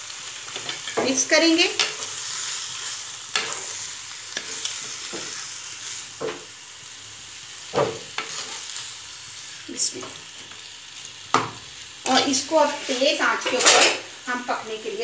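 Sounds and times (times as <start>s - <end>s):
food sizzling in pan: 0.0s - 15.0s
spoon scraping pan: 8.2s - 8.6s.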